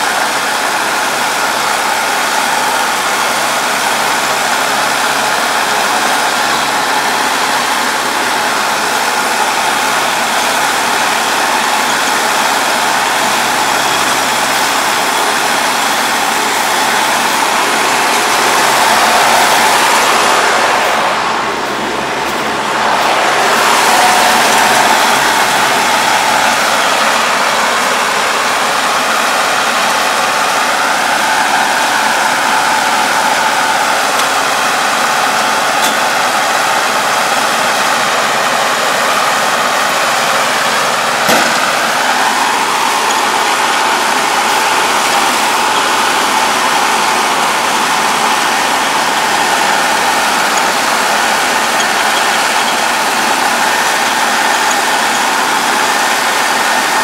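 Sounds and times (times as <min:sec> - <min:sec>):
tractor diesel engine running: 0:00.0 - 0:57.0
sharp knock: 0:41.3 - 0:41.8.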